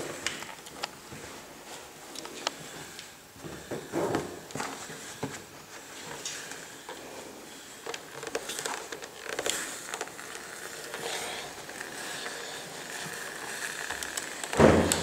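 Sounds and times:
steam iron clicks and scuffs: 7.7s - 15.0s.

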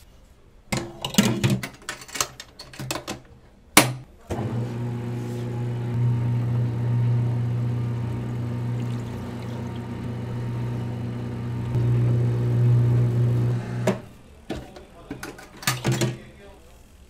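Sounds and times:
machine motor humming: 4.3s - 14.2s.

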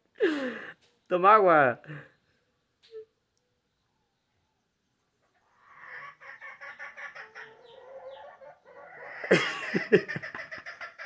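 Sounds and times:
chicken clucking: 5.0s - 11.0s.

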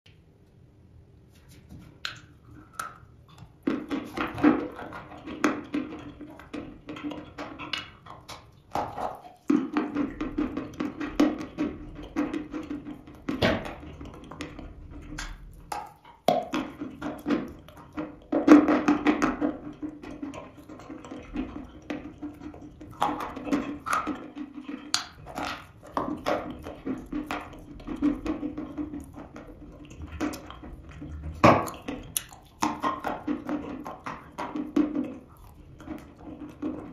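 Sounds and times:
chalk crunching while chewed: 24.9s - 34.4s, 35.2s - 36.6s.

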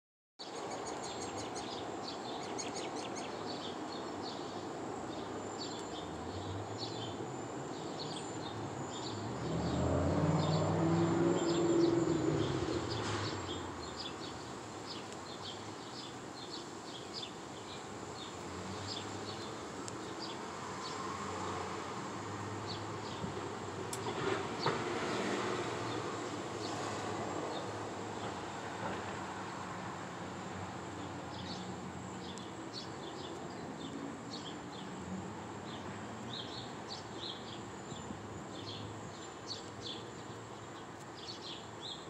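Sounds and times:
small birds chirping: 0.4s - 21.7s, 30.9s - 42.0s
vehicle engine passing: 9.0s - 14.1s, 20.6s - 29.8s.

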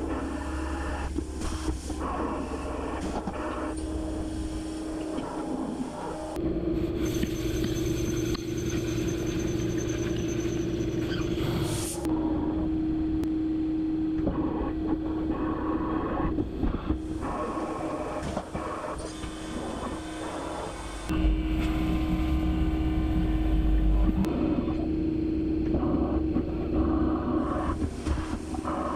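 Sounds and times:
spindle high whine: 0.0s - 28.9s
machine tool humming: 19.2s - 24.6s.

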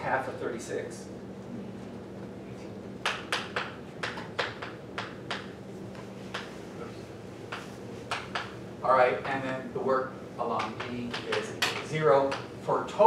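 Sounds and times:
chalk tapping on blackboard: 3.0s - 5.5s, 6.3s - 6.6s, 7.5s - 8.6s.

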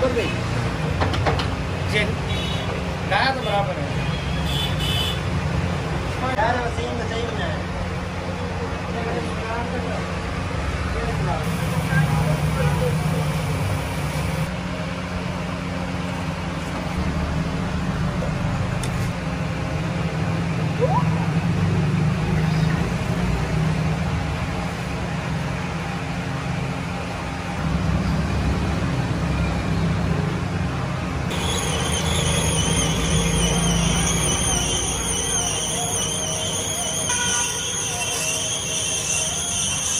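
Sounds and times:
high wavering whine: 31.3s - 39.9s.

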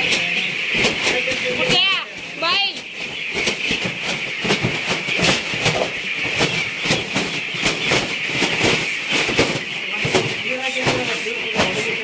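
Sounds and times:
chicks cheeping: 0.0s - 12.0s.

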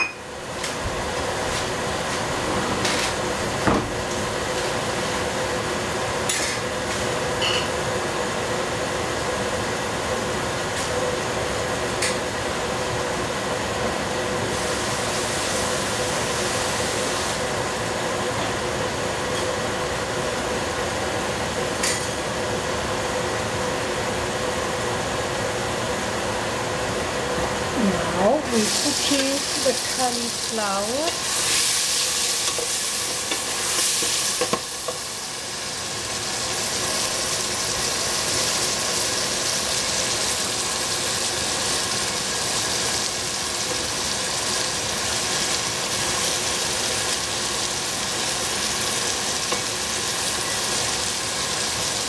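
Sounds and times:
mechanical hum: 0.0s - 52.0s
dishes and utensils clinking: 7.4s - 7.7s.

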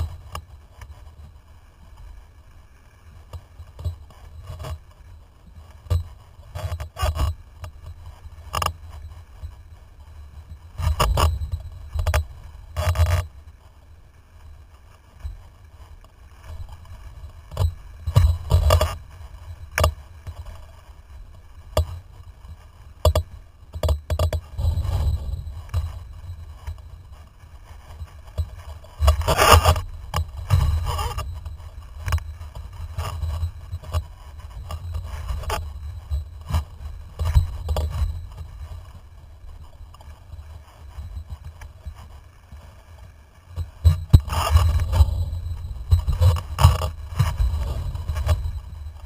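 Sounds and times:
wind on microphone: 16.4s - 42.2s, 43.6s - 49.0s.

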